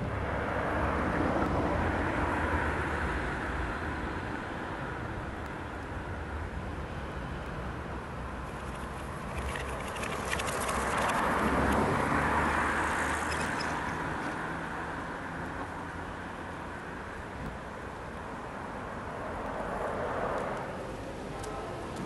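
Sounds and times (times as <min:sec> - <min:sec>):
traffic rumble: 0:00.0 - 0:22.0
vehicle passing by: 0:08.3 - 0:14.9.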